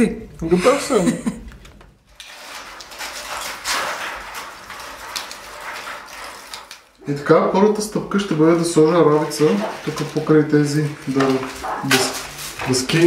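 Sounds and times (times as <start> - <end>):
wire mesh rustling and scraping: 2.1 - 13.0.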